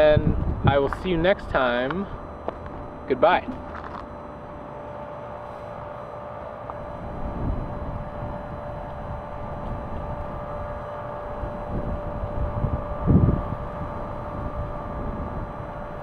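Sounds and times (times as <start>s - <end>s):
wind buffeting microphone: 0.0s - 3.0s, 6.6s - 16.0s
steady background hum: 0.0s - 16.0s.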